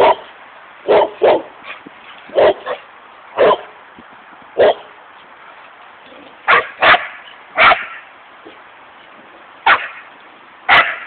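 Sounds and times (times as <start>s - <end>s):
dog barking: 0.0s - 0.2s, 0.9s - 1.5s, 2.4s - 2.8s, 3.4s - 3.7s, 4.6s - 4.9s, 6.5s - 8.0s, 9.7s - 10.0s, 10.7s - 11.0s.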